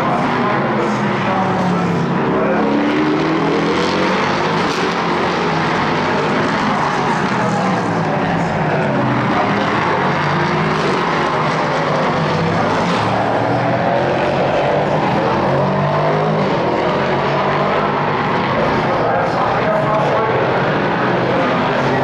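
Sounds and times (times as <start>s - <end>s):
race car engines at high revs: 0.0s - 22.0s.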